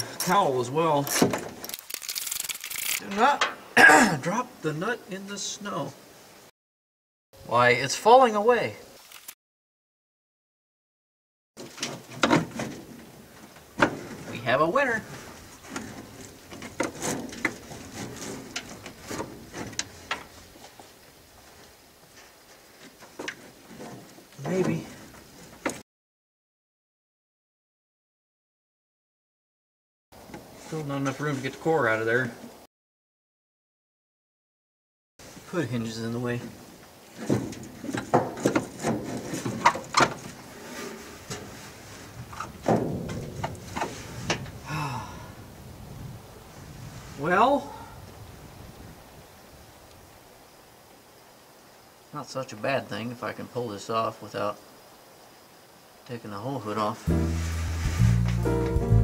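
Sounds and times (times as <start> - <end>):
hand tools clinking on metal: 0.0 - 0.4
rustling: 11.6 - 25.8, 36.4 - 44.6, 57.0 - 59.0
metal knocks and scrapes: 37.2 - 41.6, 42.4 - 44.5.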